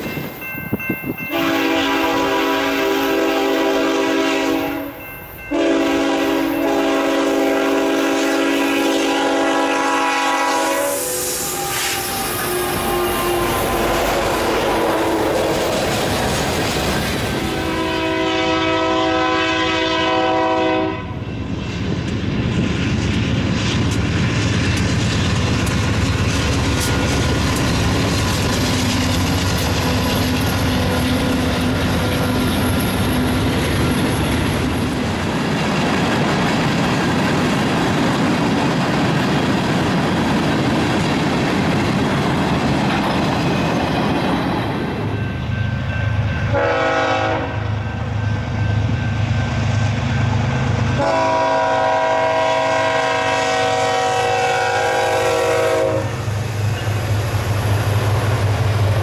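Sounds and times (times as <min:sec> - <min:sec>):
train air horn: 0:01.3 - 0:15.6, 0:17.4 - 0:21.3, 0:46.5 - 0:47.8, 0:51.0 - 0:56.4
freight cars rumbling on rails: 0:11.4 - 0:18.3, 0:21.2 - 0:46.4.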